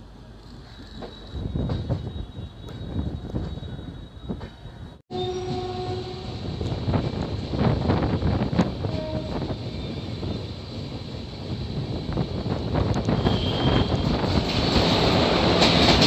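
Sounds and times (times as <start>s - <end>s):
train wheels rumbling on rails: 0.0s - 16.0s
train horn: 5.1s - 6.5s, 8.8s - 9.6s, 13.1s - 14.2s.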